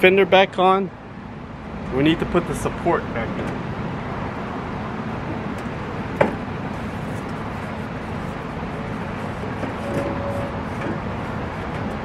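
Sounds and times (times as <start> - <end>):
outdoor background hum: 0.0 - 12.0
short squeak: 9.7 - 10.8.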